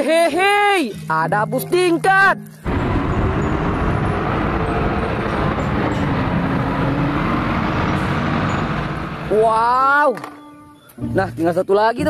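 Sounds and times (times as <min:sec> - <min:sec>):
road and traffic noise: 0:02.5 - 0:11.1
bus engine rumble: 0:02.7 - 0:09.7.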